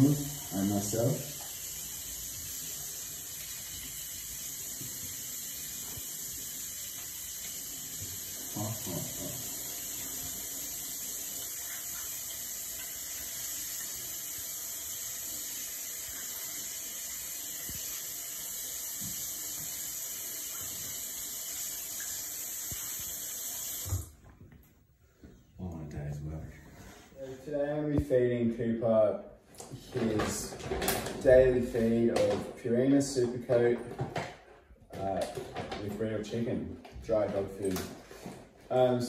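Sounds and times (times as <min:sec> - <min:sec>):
tap running into sink: 0:03.4 - 0:24.1.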